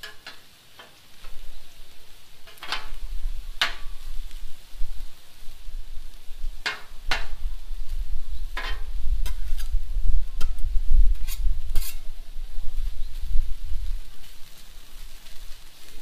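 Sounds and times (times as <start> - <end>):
metal spatulas scraping griddle: 2.4 - 4.0, 6.6 - 7.4, 8.5 - 9.8, 10.4 - 12.1.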